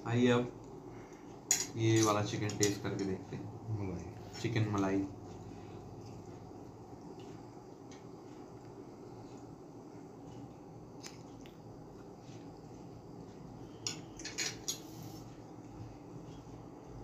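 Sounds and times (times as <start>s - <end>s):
faint room noise: 0.0s - 17.0s
cutlery clinking on a plate: 13.9s - 15.0s.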